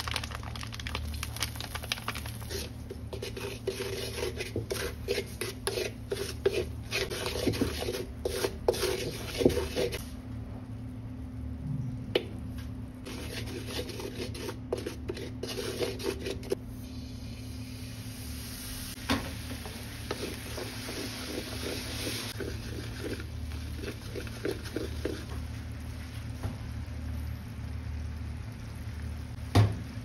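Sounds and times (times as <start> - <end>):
wooden spatula scraping a wok: 2.5 - 10.0, 13.1 - 16.6, 20.0 - 25.4
roux sizzling: 13.1 - 29.4.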